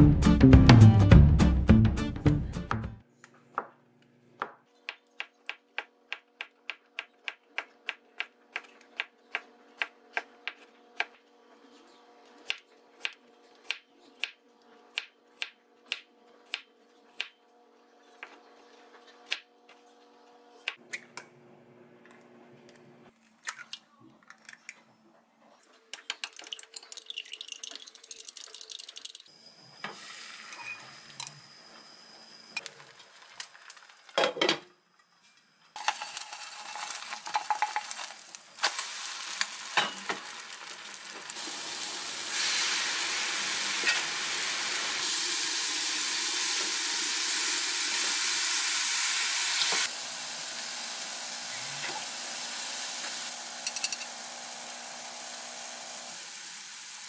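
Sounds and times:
utensil beating eggs in glass: 26.2 - 29.2
egg sizzling in a pan: 35.8 - 57.0.

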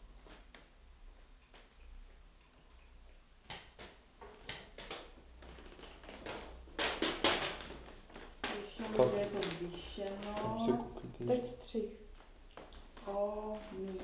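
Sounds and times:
paper rustling and crackling: 3.8 - 10.6.

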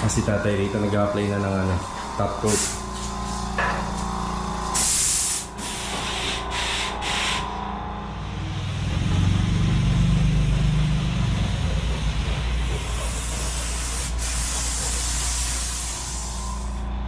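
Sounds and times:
air compressor droning: 0.0 - 17.0
paint spray gun hissing: 4.8 - 7.4, 12.7 - 16.7.

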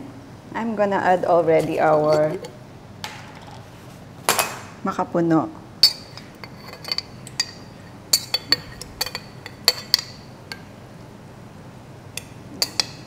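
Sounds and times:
metal spoon clinking on glass jar: 5.8 - 10.6, 12.6 - 13.0.

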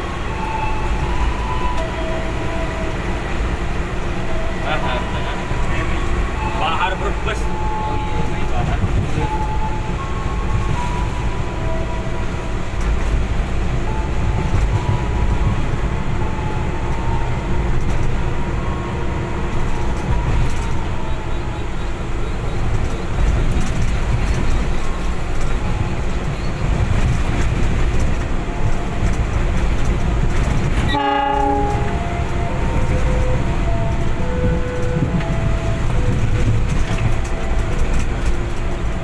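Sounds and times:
diesel locomotive engine rumble: 0.0 - 39.0
rail joint clicks: 0.0 - 39.0
wheels rolling on rails: 8.3 - 39.0.

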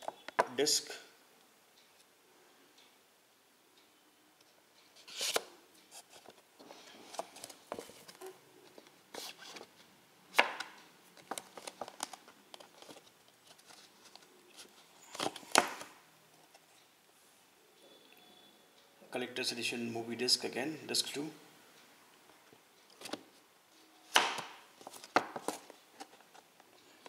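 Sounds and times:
cardboard and plastic rustling: 5.0 - 9.7, 11.2 - 15.9, 24.8 - 26.5.

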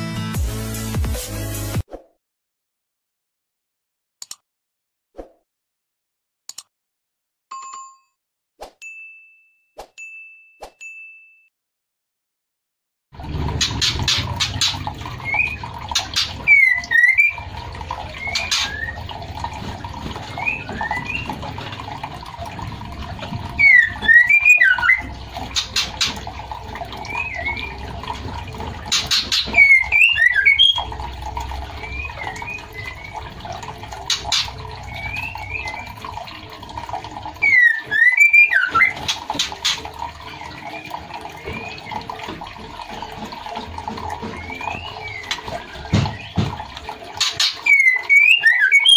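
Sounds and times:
bird rapid up-and-down notes: 13.3 - 48.9
bird whistled chirps: 37.4 - 39.0, 47.6 - 48.9.

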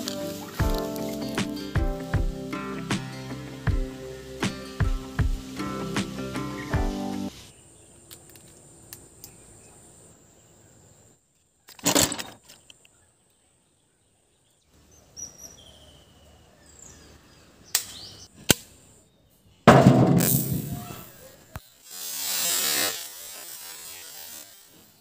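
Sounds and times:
faint bird chirps: 12.5 - 18.4.

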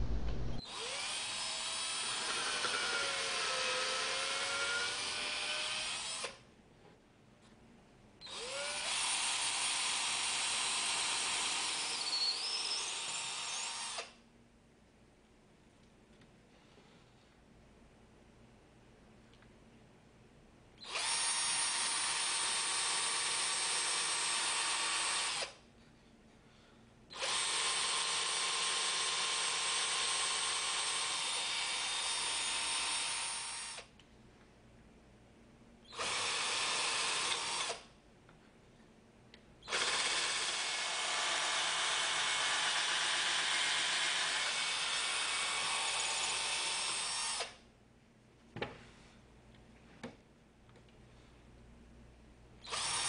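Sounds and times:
electric drill boring into wood: 0.6 - 6.4, 8.3 - 14.2, 20.8 - 25.6, 27.2 - 33.9, 35.9 - 37.9, 39.6 - 47.6, 52.6 - 53.0.

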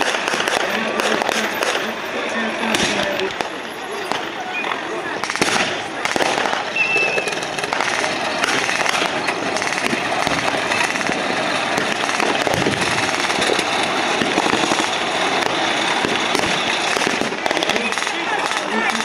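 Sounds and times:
blank gunfire crackling: 0.0 - 4.3, 5.2 - 19.0
pyrotechnic charges popping: 0.0 - 19.0.

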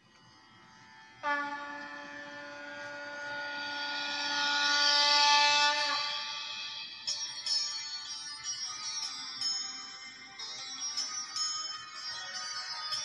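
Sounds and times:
steady horn-like note: 1.2 - 7.0.

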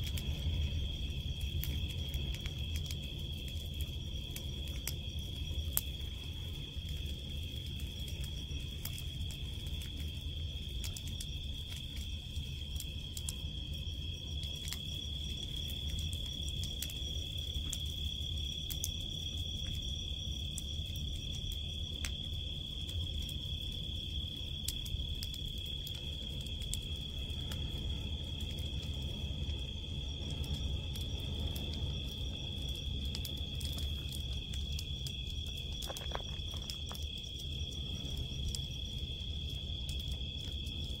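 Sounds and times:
bonfire crackling and popping: 0.0 - 41.0
crickets chirring: 0.0 - 41.0.

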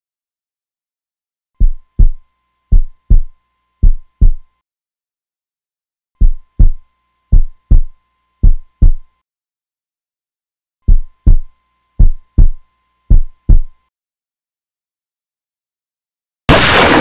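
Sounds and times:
heartbeat thumps: 1.6 - 4.5, 6.2 - 9.1, 10.8 - 13.8.

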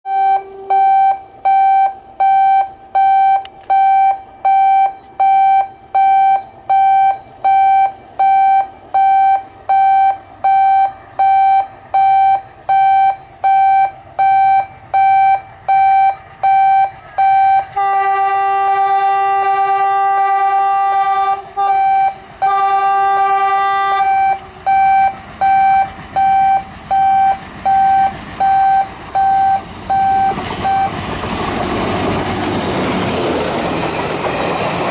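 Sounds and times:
electronic beeping: 0.1 - 17.7, 24.1 - 31.0
locomotive horn blasts: 0.1 - 30.9
train rumble: 0.1 - 34.9.

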